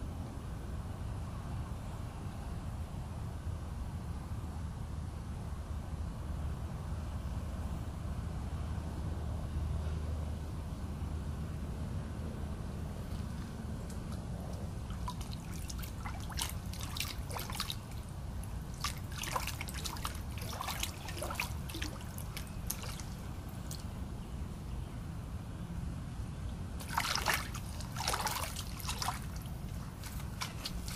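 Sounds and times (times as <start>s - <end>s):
pond water splashing: 14.6s - 24.0s, 26.8s - 30.9s.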